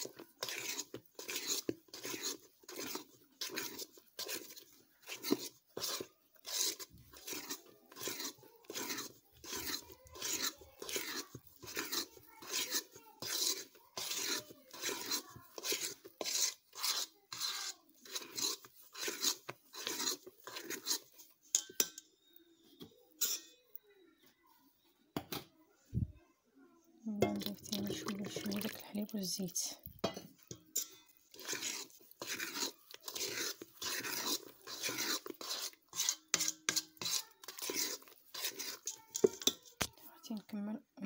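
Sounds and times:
batter stirred in a bowl: 0:00.0 - 0:25.0, 0:27.0 - 0:40.8.

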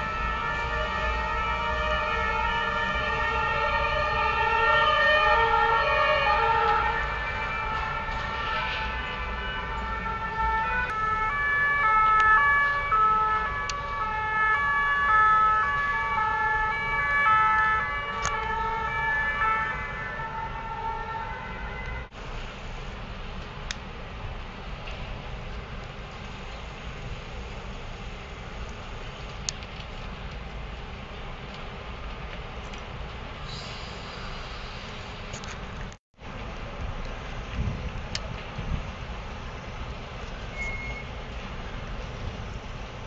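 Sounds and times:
two-tone siren: 0:00.0 - 0:22.2
emergency sirens overlapping: 0:00.0 - 0:43.0.

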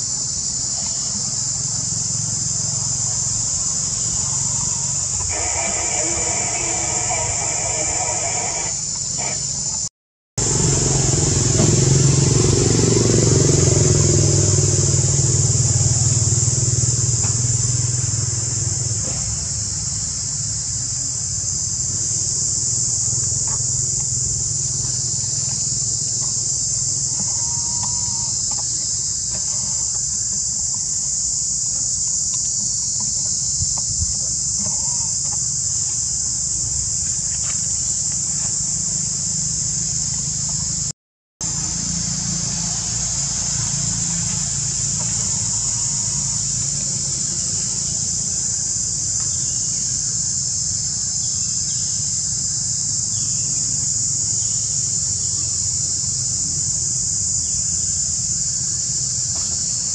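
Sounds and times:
insect chorus drone: 0:00.0 - 0:59.9
faint calls: 0:04.1 - 0:09.6, 0:26.0 - 0:30.4
low motor rumble: 0:10.4 - 0:48.7.

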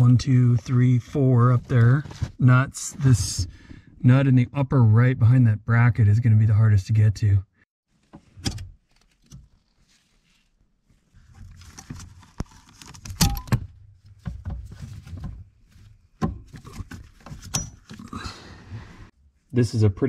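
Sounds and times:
rustling: 0:07.9 - 0:13.2.

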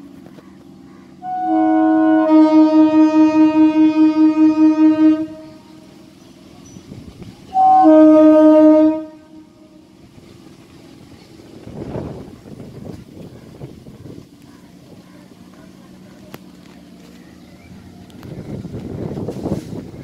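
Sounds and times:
train horn blasts: 0:01.2 - 0:06.1, 0:07.4 - 0:09.9.

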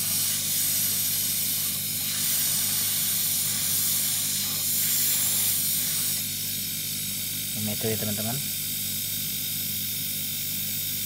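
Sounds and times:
fluid and air hissing from pipe: 0:00.0 - 0:07.1.

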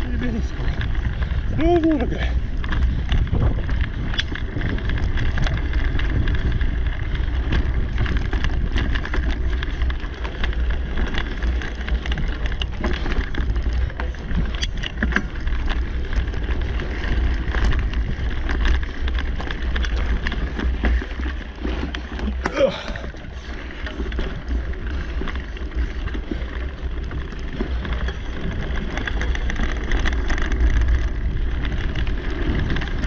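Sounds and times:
wind on microphone: 0:00.0 - 0:11.2
bike clicks and rattles: 0:00.0 - 0:33.0
bike tyre noise: 0:00.0 - 0:33.0.

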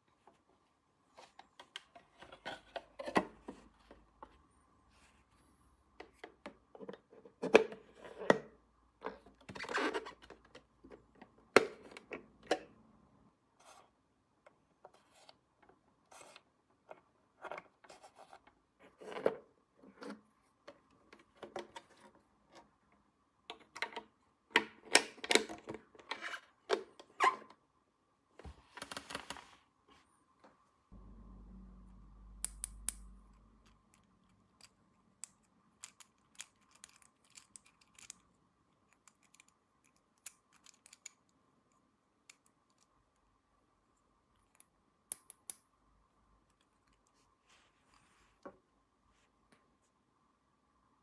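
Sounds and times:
low steady hum: 0:29.9 - 0:40.0.

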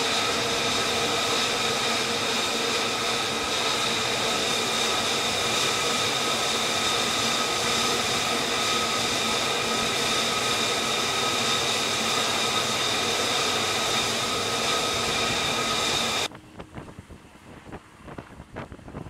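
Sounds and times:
jet engine turbine whine: 0:00.0 - 0:19.0
wind buffeting microphone: 0:14.6 - 0:19.0.

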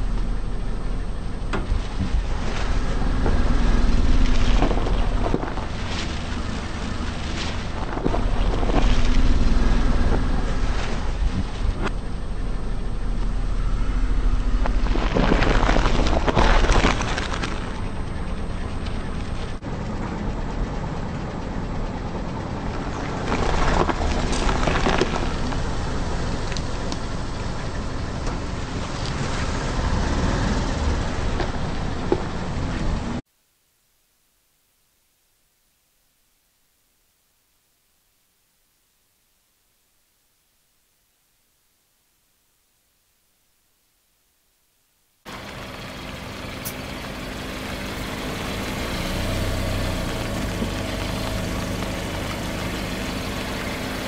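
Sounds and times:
car engine running: 0:00.0 - 0:33.2, 0:45.3 - 0:54.0
tyres rolling on asphalt: 0:00.0 - 0:33.2, 0:45.3 - 0:54.0
vegetables crackling under tyre: 0:14.6 - 0:17.9, 0:23.2 - 0:25.8.

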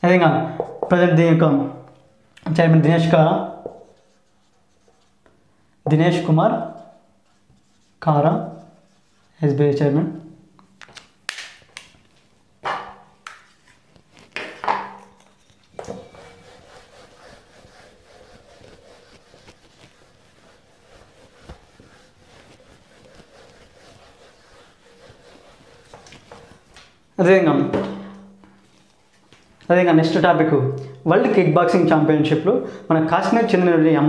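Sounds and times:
eraser scrubbing whiteboard: 0:03.0 - 0:05.2, 0:06.2 - 0:09.4, 0:15.0 - 0:27.0.

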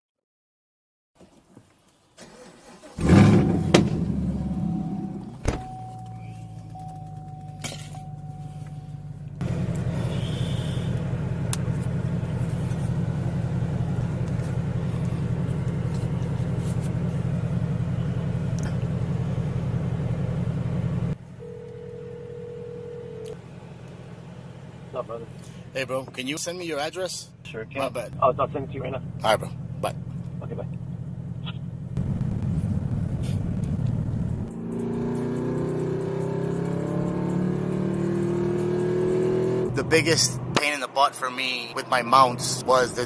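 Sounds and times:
car engine starting and idling: 0:02.2 - 0:43.0
phone call tone: 0:05.7 - 0:09.1, 0:21.4 - 0:23.4.

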